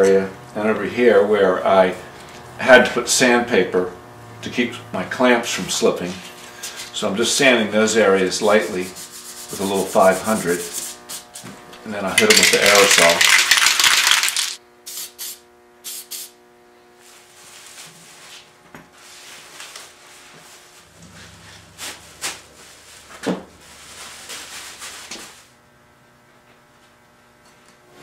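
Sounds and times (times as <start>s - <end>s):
aerosol spray can hissing: 13.5s - 16.4s
plastic sheeting rustling: 17.0s - 25.5s.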